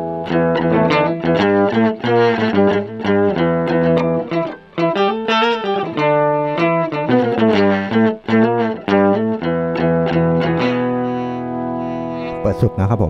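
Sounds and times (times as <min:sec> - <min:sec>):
electric guitar riff with octave effect: 0:00.0 - 0:13.0.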